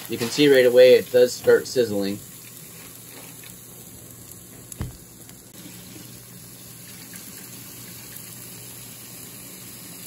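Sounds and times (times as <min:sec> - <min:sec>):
steak sizzling on a grill: 0:00.0 - 0:10.0
short thump: 0:04.7 - 0:05.1.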